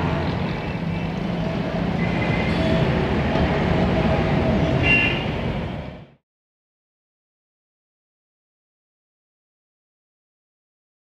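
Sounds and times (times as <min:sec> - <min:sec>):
tram rail rumble: 0:00.0 - 0:06.2.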